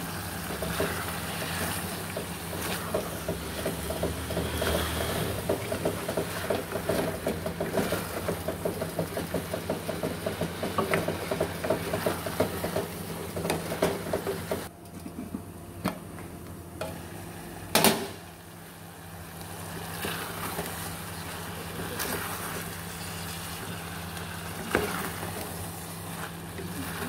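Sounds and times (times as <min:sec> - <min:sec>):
faint frying sizzle: 0:00.0 - 0:14.7, 0:16.8 - 0:27.0
wooden spatula knocking pot: 0:02.1 - 0:04.7, 0:05.3 - 0:14.7.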